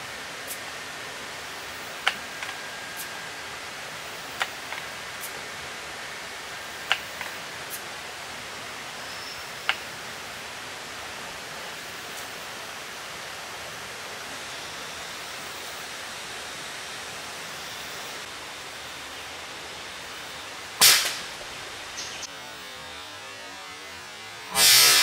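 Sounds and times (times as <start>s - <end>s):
hissing forest background: 0.0s - 25.0s
rifle shot: 20.8s - 21.3s
sharp click: 20.8s - 21.3s.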